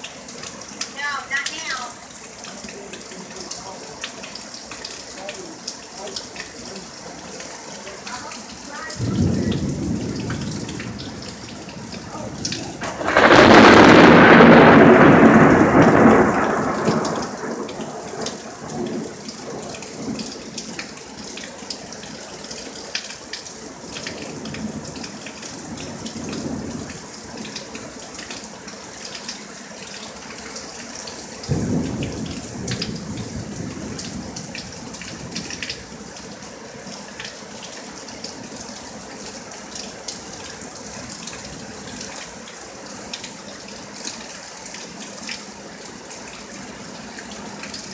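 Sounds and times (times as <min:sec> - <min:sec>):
steady rain falling: 0:00.0 - 0:47.9
thunder rumbling: 0:08.9 - 0:20.8, 0:31.4 - 0:35.9
loud close thunderclap: 0:09.0 - 0:20.3, 0:31.5 - 0:35.6.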